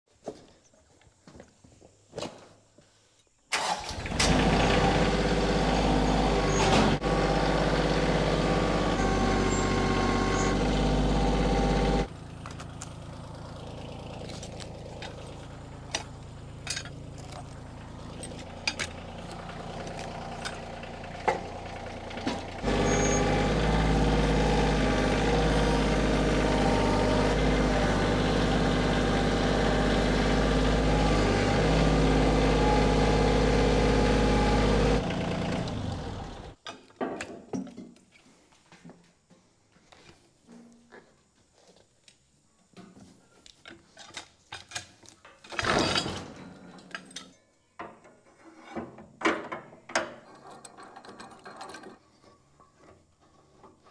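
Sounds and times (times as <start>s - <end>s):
tractor engine running: 3.6s - 36.6s.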